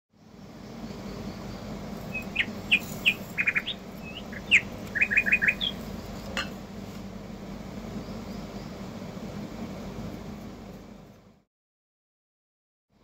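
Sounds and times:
small birds chirping: 0.2 - 6.7, 7.7 - 9.0
low hum: 0.2 - 11.4.

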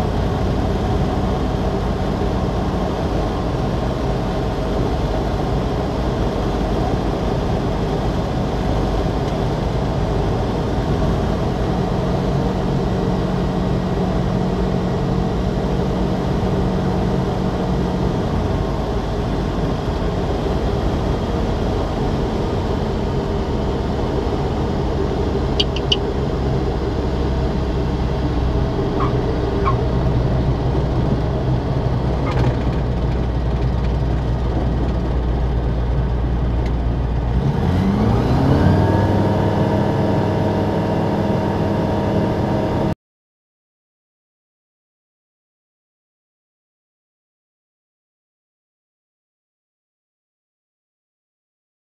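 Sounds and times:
aircraft engine and propeller: 0.0 - 42.9
short high chirps: 25.6 - 26.0.

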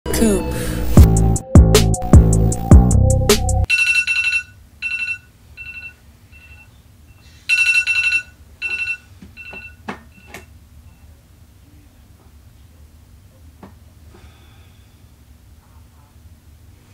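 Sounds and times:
phone alarm beeping: 3.7 - 6.7, 7.5 - 10.5.

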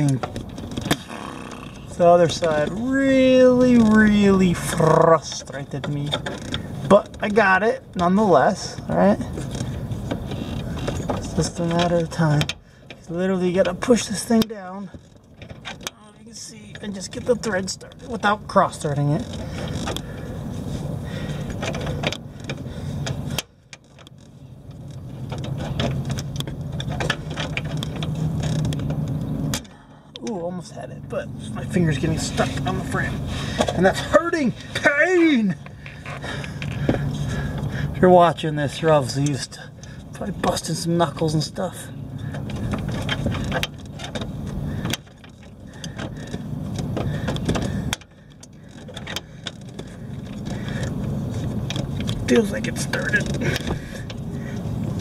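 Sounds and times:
steady low hum: 0.0 - 55.0
fingers working a bolt: 42.2 - 55.0.

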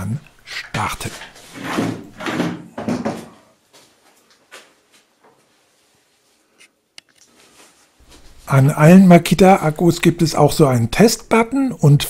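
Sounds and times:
scrape on workbench: 1.4 - 2.4
knocks on wooden workbench: 1.8 - 3.4.

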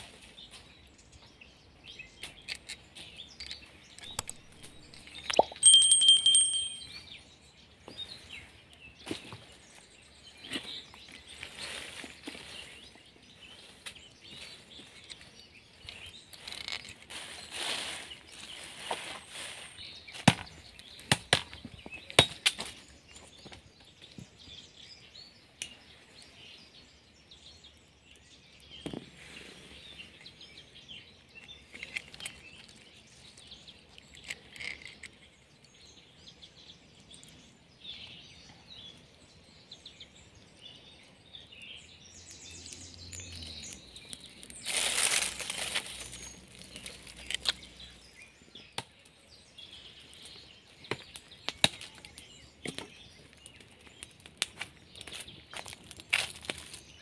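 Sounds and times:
birds chirping: 0.0 - 57.0
dry branches rustling: 8.0 - 21.8, 41.8 - 48.2, 49.7 - 57.0.

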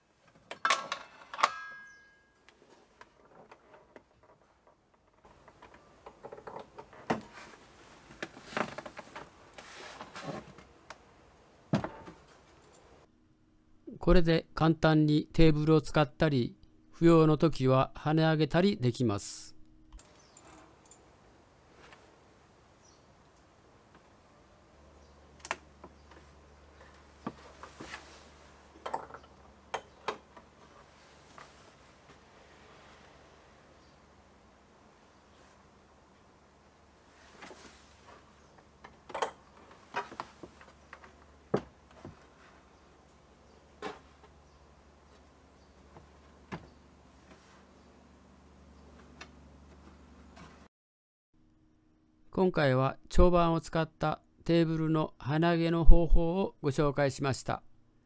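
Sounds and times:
rustling: 7.0 - 10.8, 26.0 - 28.8, 30.5 - 34.1, 36.9 - 38.8.

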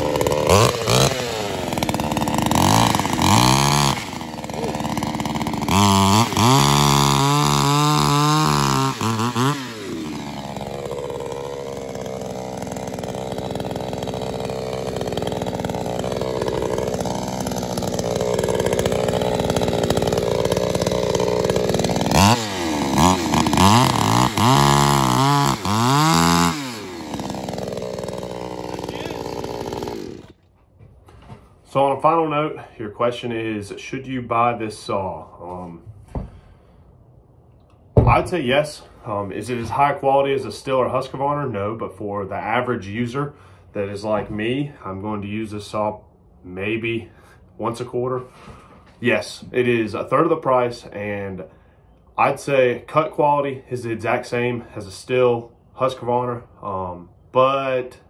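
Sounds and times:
chainsaw revving: 0.0 - 30.4.

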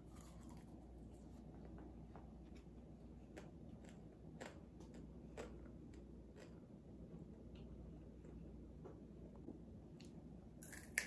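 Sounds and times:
crunchy chewing: 0.0 - 6.8, 10.6 - 11.0
low steady hum: 0.0 - 11.0.

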